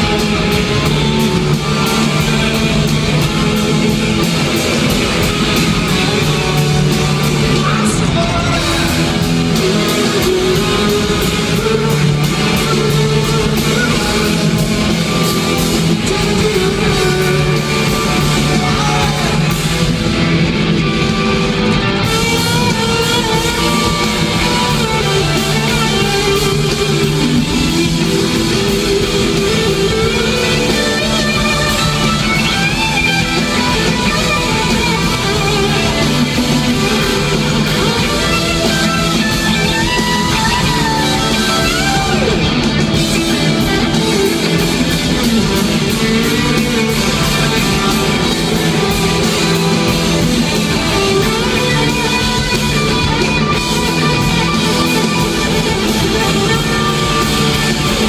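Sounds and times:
live rock band playing: 0.0 - 58.0
lead vocal singing: 5.9 - 19.9.

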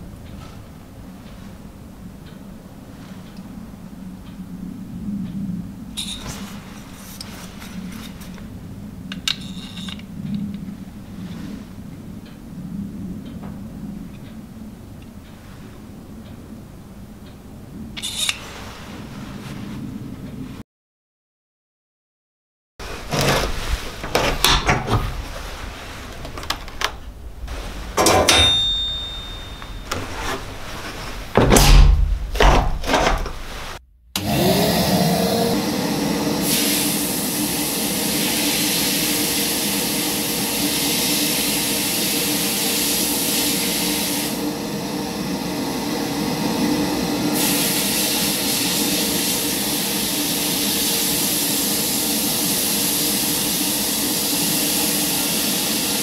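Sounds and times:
knocks and clunks of handling: 31.3 - 33.5
extractor whine and drone: 34.2 - 38.5, 44.3 - 47.4
sandblasting gun hissing: 34.9 - 56.0.

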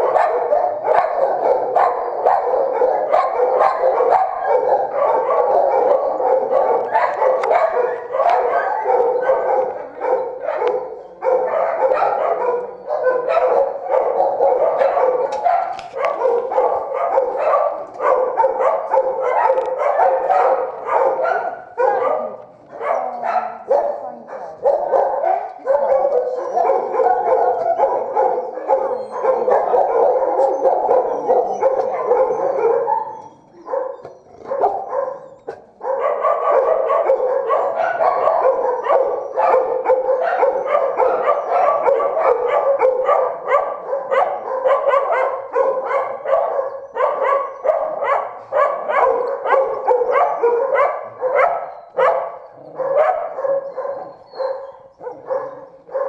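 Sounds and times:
dogs barking: 0.0 - 56.0.

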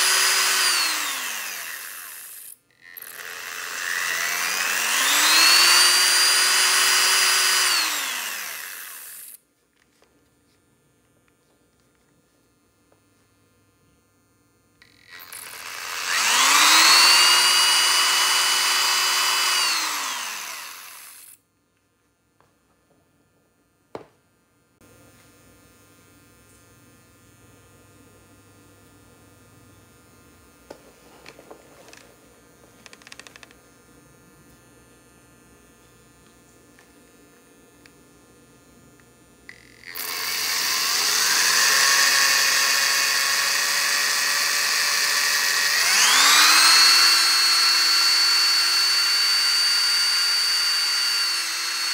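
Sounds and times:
electric drill motor whining: 0.0 - 9.4, 14.8 - 21.4, 39.5 - 51.9.

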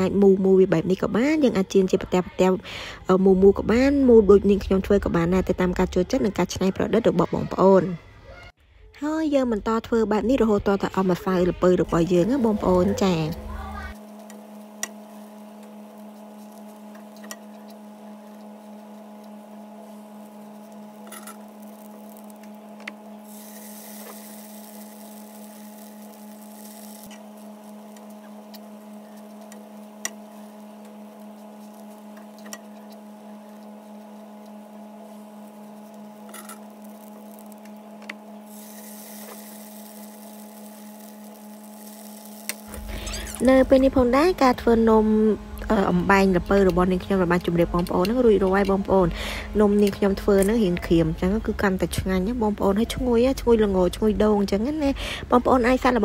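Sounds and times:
steady electric hum: 0.0 - 56.0
oil sizzling: 11.2 - 53.1
fritters frying in a pan: 14.0 - 43.4.

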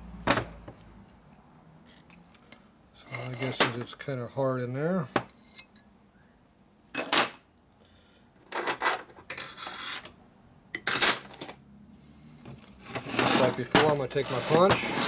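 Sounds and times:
metal tools clinking on workbench: 7.0 - 7.7.

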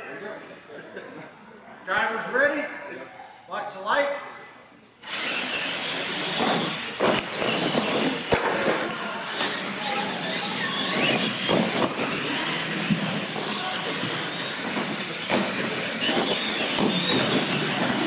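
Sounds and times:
electric motors whining: 5.0 - 18.0
tyre noise on concrete: 5.0 - 18.0
toy trucks knocking on ramps: 6.2 - 18.0.

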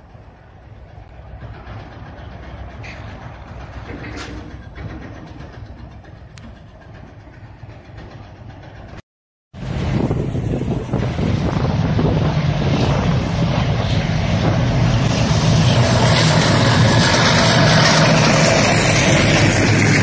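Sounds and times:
train rumbling on track: 0.0 - 20.0
wind noise on microphone: 9.6 - 20.0.

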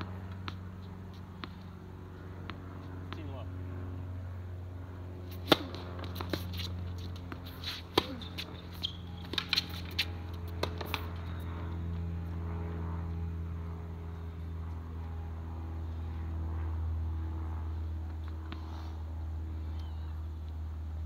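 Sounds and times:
steady low hum: 0.0 - 21.0
tennis ball hits: 5.3 - 11.1.

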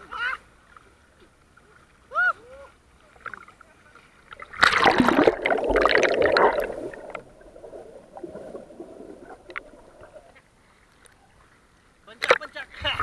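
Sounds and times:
seawater splashing: 0.3 - 11.2
underwater bubbling and gurgling: 3.1 - 10.8.

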